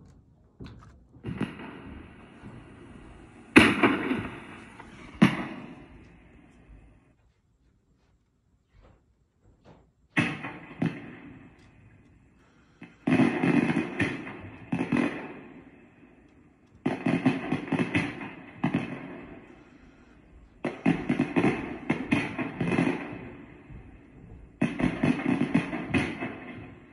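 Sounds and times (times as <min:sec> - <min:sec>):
pops and crackles: 0:00.0 - 0:06.6
firework bursts from small speaker: 0:01.3 - 0:06.9.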